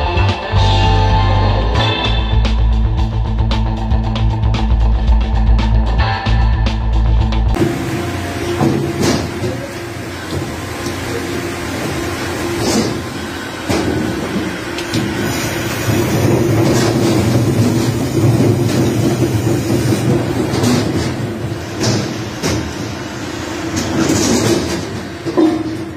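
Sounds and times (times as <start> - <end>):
machinery drone: 0.0 - 25.9
knocks and clatters: 7.5 - 25.9.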